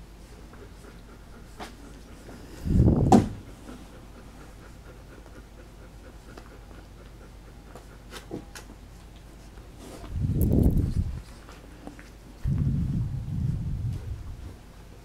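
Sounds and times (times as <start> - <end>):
dog panting: 0.2 - 10.1
low muffled burst: 12.4 - 14.5.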